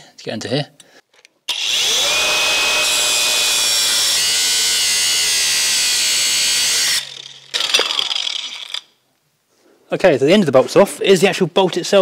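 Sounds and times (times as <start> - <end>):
angle grinder cutting metal: 1.5 - 8.9.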